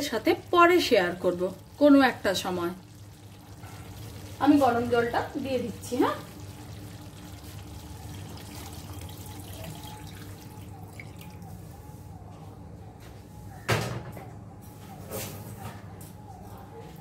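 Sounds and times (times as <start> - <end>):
water splashing into curry: 0.2 - 11.5.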